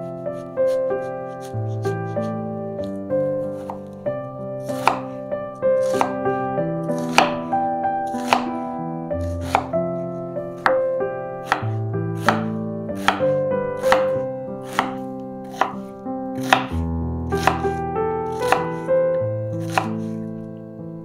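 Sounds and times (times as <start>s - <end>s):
soft piano music: 0.0s - 21.0s
knife chopping on cutting board: 0.4s - 3.9s, 4.6s - 5.2s, 5.8s - 8.6s, 9.2s - 9.8s, 10.6s - 18.9s, 19.6s - 20.2s.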